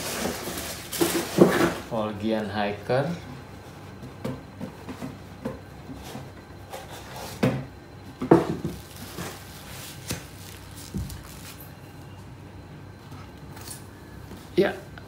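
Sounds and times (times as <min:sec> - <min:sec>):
packing insert rustling: 0:08.7 - 0:11.7.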